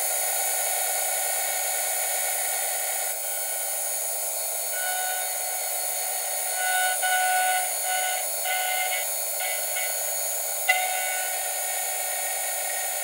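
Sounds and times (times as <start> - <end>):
milling machine cutting metal: 4.6 - 13.0.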